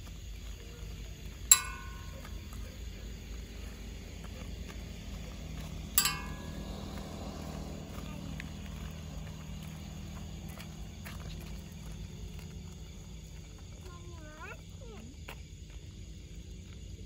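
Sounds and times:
steady low hum: 0:00.0 - 0:14.7
sharp knocks with ringing: 0:01.5 - 0:02.6, 0:06.0 - 0:07.2.

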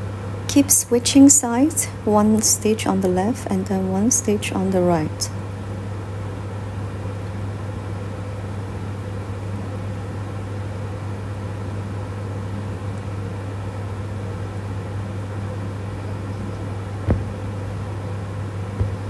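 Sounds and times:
steady low hum with hiss: 0:00.0 - 0:14.5, 0:15.2 - 0:19.0
short knock: 0:15.6 - 0:19.0.

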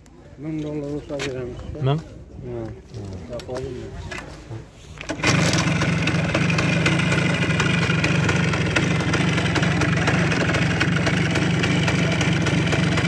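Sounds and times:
motorcycle kick-start: 0:05.0 - 0:13.0
two-stroke motorcycle engine idling: 0:05.2 - 0:13.0.

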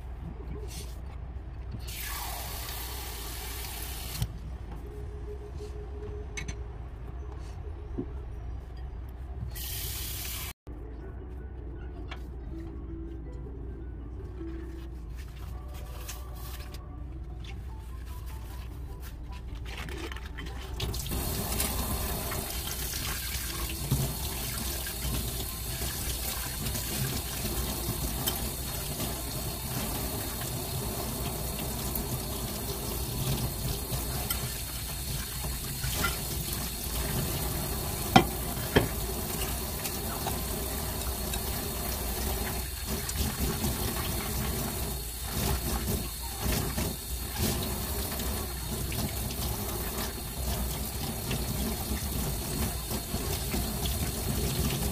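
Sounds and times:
tap running into a sink: 0:38.0 - 0:40.5.

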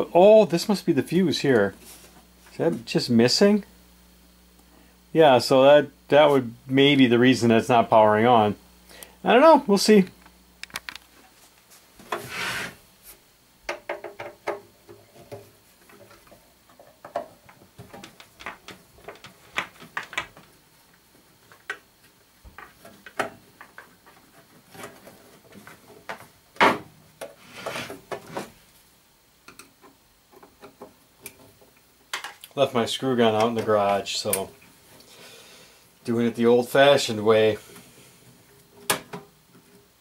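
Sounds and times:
amplifier scraping on workbench: 0:12.0 - 0:12.8, 0:27.4 - 0:28.6
handling knocks and clicks: 0:15.3 - 0:20.5.

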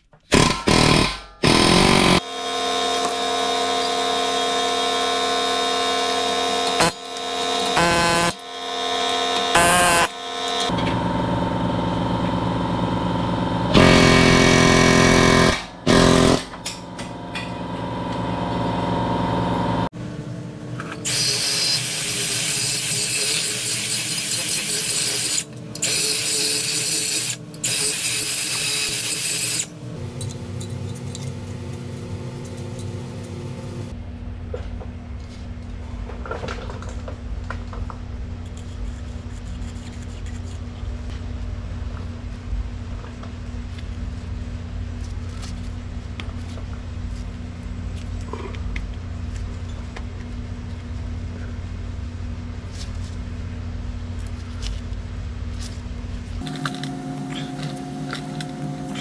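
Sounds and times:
power tool burst: 0:00.3 - 0:08.4, 0:09.0 - 0:10.8, 0:13.7 - 0:16.6, 0:21.0 - 0:29.7
rotary grinding tool whining: 0:00.7 - 0:16.5, 0:21.0 - 0:30.8, 0:56.4 - 0:59.0.

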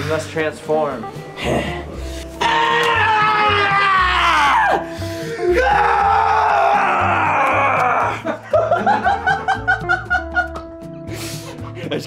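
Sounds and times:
background music: 0:00.0 - 0:12.0
man yelling: 0:05.4 - 0:08.2.

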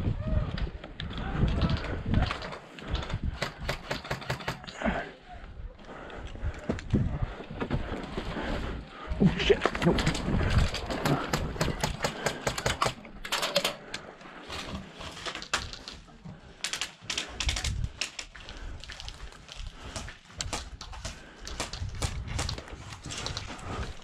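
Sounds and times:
airsoft guns firing: 0:03.4 - 0:04.7.

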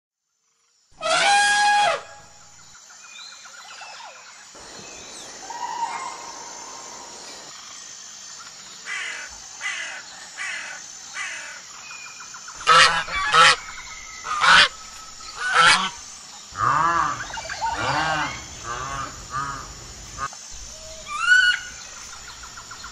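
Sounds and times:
animal calls: 0:04.6 - 0:07.5.

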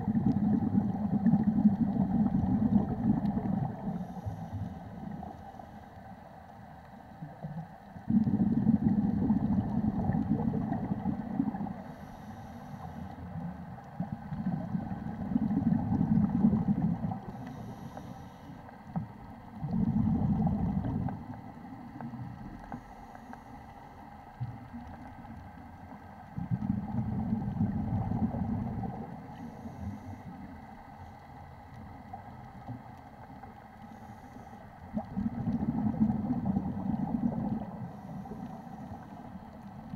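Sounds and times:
underwater exhaled bubbling: 0:00.0 - 0:05.6, 0:07.1 - 0:39.9
regulator inhalation hiss: 0:11.9 - 0:13.1, 0:17.3 - 0:18.6.

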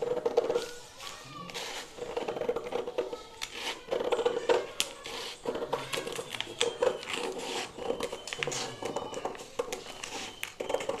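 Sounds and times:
scissors cutting paper: 0:00.0 - 0:11.0.

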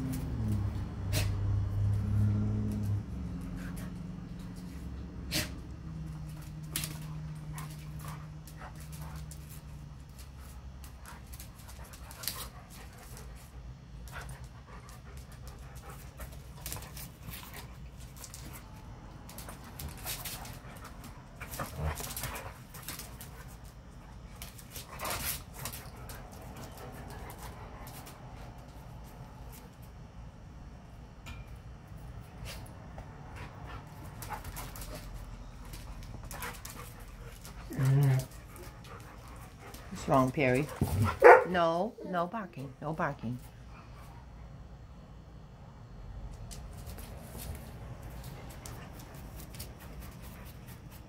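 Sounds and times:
dogs scuffling: 0:01.8 - 0:30.0, 0:33.3 - 0:41.5, 0:46.3 - 0:51.0
dog panting: 0:33.4 - 0:41.4.

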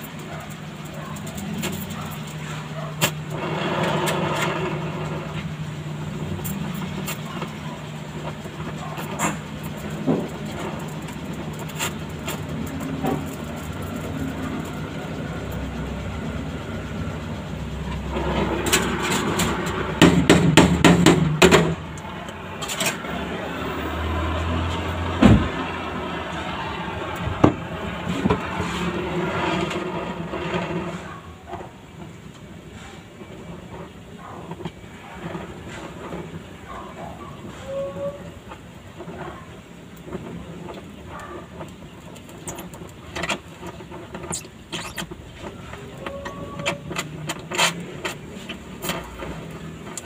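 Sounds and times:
welding arc crackle: 0:00.0 - 0:50.0.

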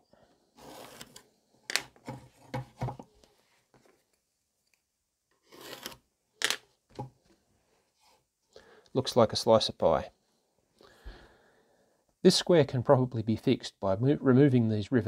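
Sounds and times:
pencil scratching: 0:00.6 - 0:01.2, 0:05.4 - 0:06.0.

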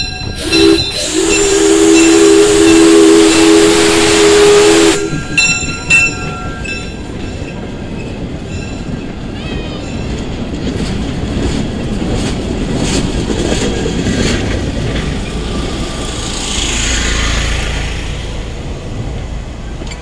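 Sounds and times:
train wheels rumbling on rails: 0:00.0 - 0:20.0
hiss: 0:00.4 - 0:05.3
wheels clicking over rail joints: 0:05.0 - 0:20.0.

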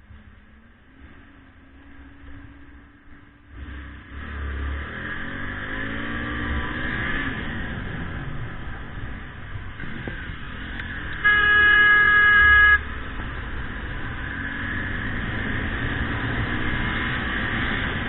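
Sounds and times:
motorcycle riding through traffic: 0:00.0 - 0:18.0
horn blast: 0:11.1 - 0:12.9.

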